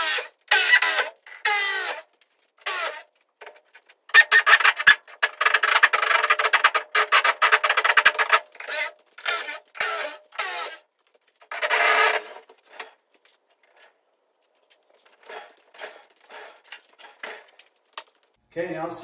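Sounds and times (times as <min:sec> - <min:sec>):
screws grinding: 0:00.0 - 0:02.0, 0:02.6 - 0:03.1, 0:04.1 - 0:10.8, 0:11.5 - 0:13.0, 0:15.0 - 0:18.0.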